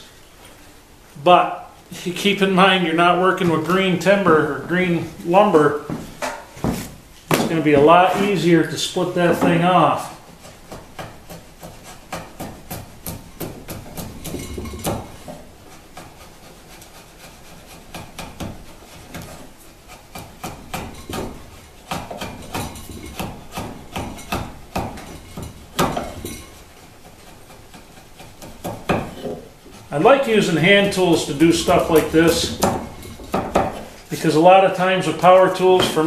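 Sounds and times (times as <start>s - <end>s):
chisel scraping wood: 9.2s - 34.1s.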